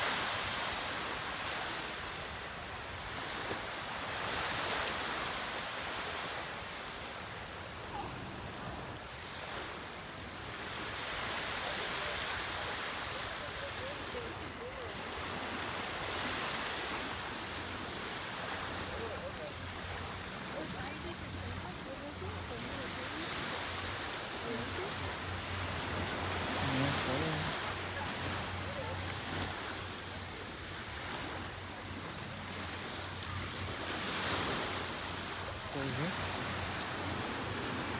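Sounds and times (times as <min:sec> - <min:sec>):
ocean waves breaking on shore: 0:00.0 - 0:37.9.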